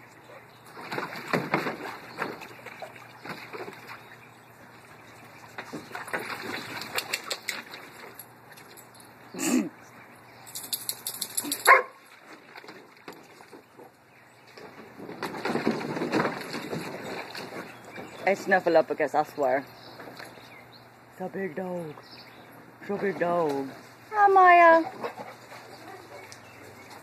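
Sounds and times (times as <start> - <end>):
dog splashing in water: 0.6 - 4.2, 5.4 - 8.7
dog barking: 11.7 - 12.0.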